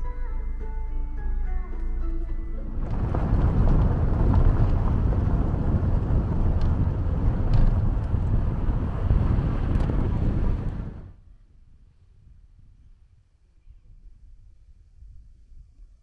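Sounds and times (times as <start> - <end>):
tyres on gravel road: 2.2 - 11.2
wind buffeting microphone: 2.8 - 13.1.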